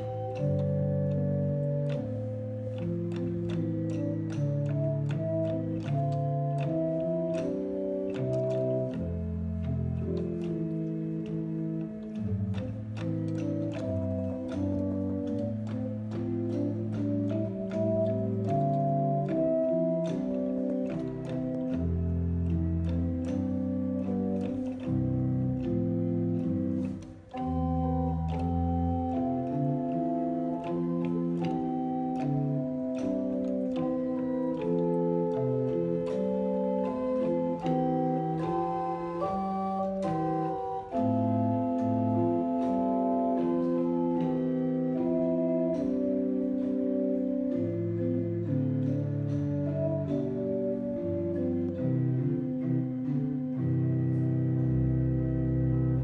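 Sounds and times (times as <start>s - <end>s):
church organ chords: 0.0s - 56.0s.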